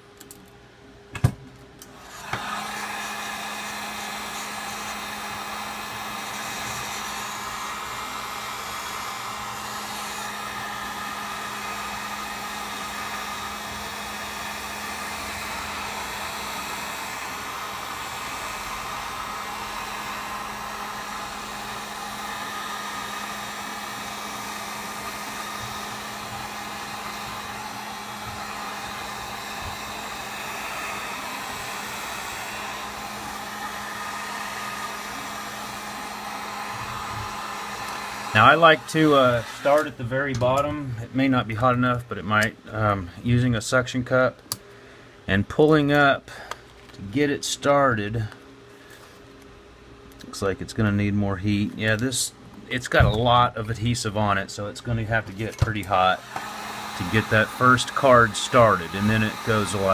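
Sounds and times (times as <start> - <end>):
heat gun blowing hiss: 2.0 - 40.0, 55.2 - 59.9.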